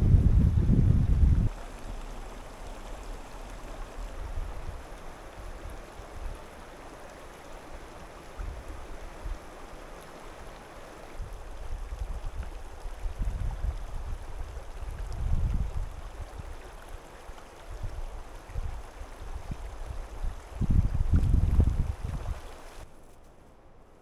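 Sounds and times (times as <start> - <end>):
low gusty rumbles: 0.0 - 1.6, 19.4 - 22.4
stream trickling over stones: 0.3 - 22.9.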